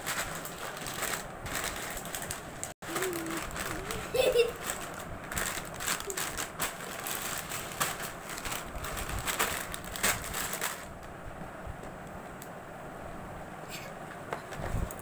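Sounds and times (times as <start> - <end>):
plastic snack packets crinkling: 0.0 - 11.0.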